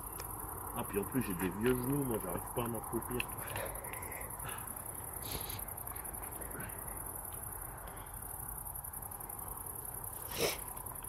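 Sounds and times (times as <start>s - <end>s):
crickets chirring: 0.0s - 11.0s.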